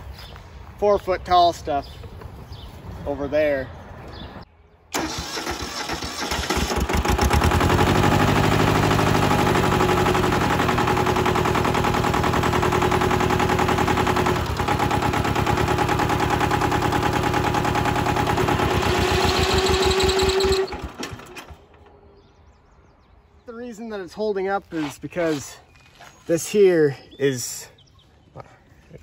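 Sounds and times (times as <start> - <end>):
tractor diesel engine clattering: 5.0 - 21.9.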